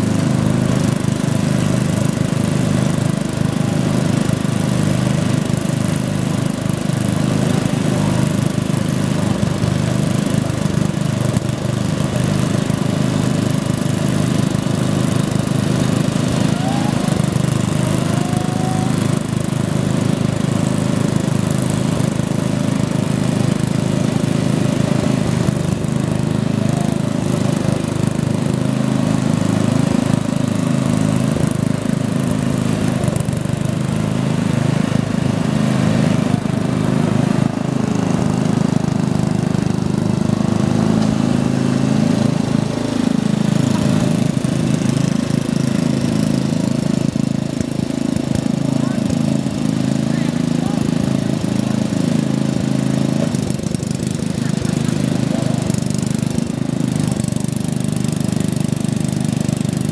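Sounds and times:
garden tractor engines running: 0.0s - 59.9s.

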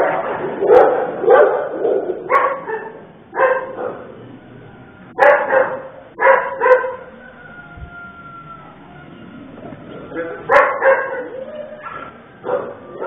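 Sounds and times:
dog barking: 0.0s - 4.2s, 5.2s - 7.2s, 10.1s - 13.0s.

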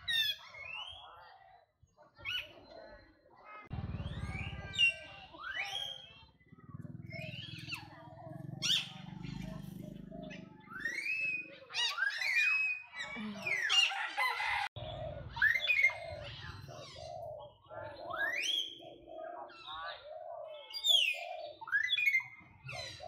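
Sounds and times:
animal squeals: 10.7s - 14.6s.

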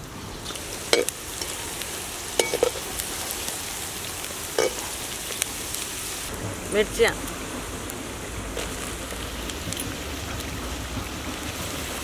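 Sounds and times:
vegetables sizzling in oil: 0.0s - 12.0s
metal spatula scraping wok: 0.5s - 1.8s, 2.4s - 3.1s, 4.6s - 5.0s.

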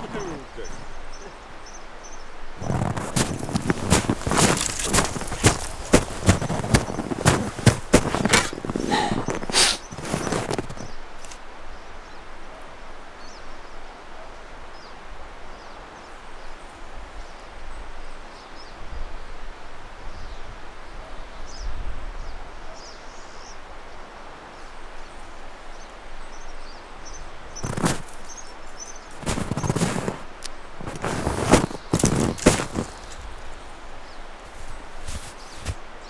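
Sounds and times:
faint bird chirps: 0.0s - 5.4s
steady hiss and low rumble: 0.0s - 20.9s
loud crunches in snow: 2.6s - 11.4s, 27.6s - 36.0s.

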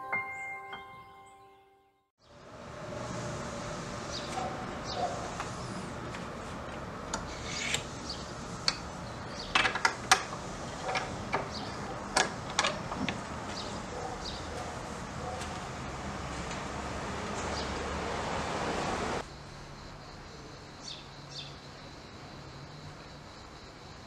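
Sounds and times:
wooden shutters scraping frame: 4.2s - 17.6s
metal latch clicking: 8.6s - 13.2s.

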